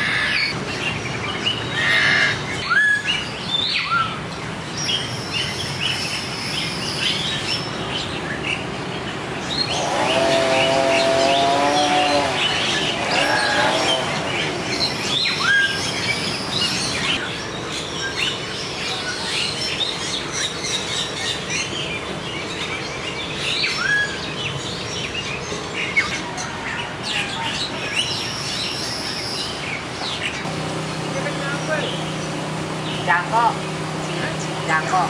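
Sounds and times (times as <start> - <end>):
birds chirping: 0.0 - 35.0
rising bird whistle: 1.8 - 4.2, 15.2 - 16.7.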